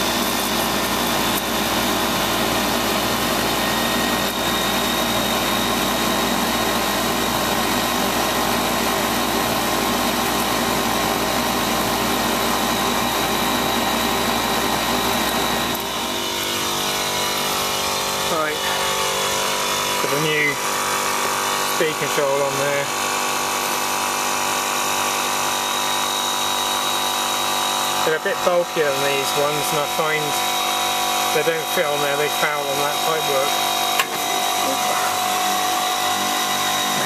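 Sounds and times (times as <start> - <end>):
fan motor humming: 0.0 - 37.0.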